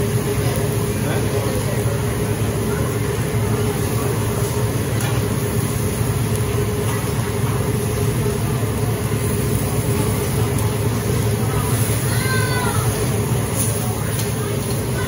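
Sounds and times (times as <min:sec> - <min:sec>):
ventilation hum: 0:00.0 - 0:15.0
steaks sizzling on griddle: 0:09.2 - 0:15.0.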